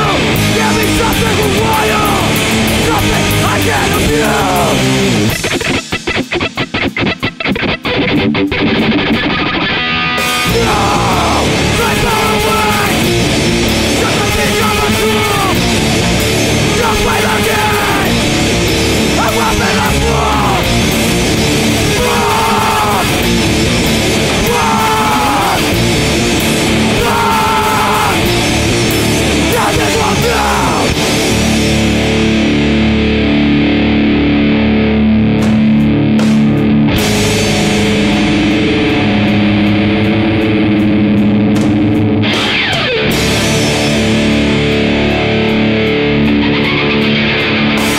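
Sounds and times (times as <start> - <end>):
rock song with guitar and vocals: 0.0 - 47.9.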